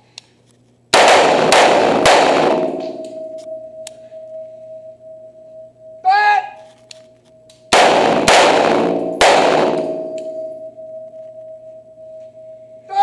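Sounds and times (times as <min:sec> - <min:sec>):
rifle shots echoing indoors: 0:00.9 - 0:04.1, 0:07.6 - 0:11.2
steady ringing tone: 0:01.7 - 0:13.0.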